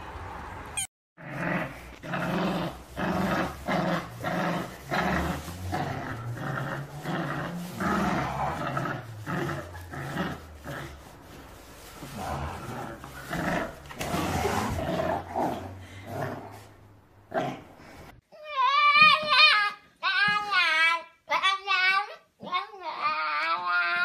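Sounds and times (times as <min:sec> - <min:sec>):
dog growling: 0:01.2 - 0:11.1, 0:12.1 - 0:16.7.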